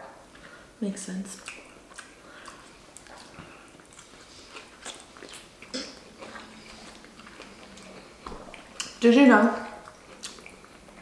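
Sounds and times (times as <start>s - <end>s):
wet chewing and mouth smacks: 1.4s - 9.0s, 9.7s - 11.0s.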